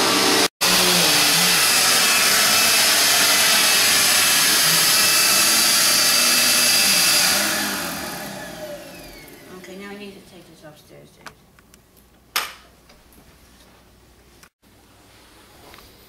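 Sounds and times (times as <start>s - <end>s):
vacuum cleaner running: 0.0s - 10.3s.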